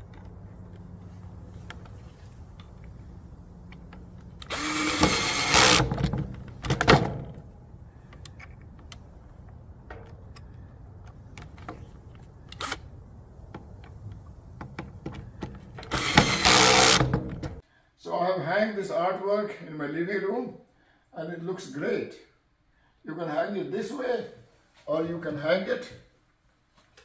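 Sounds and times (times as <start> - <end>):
cordless drill driving screws: 4.4 - 6.1, 15.8 - 17.2.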